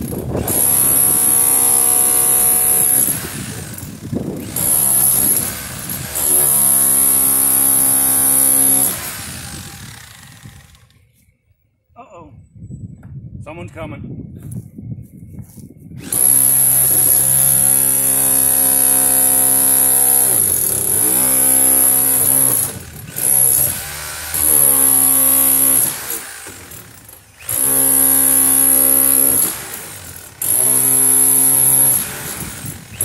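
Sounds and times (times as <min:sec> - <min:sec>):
demolition hammer chiselling metal: 0:00.0 - 0:10.1, 0:16.0 - 0:33.0
high motor whine: 0:00.0 - 0:11.3.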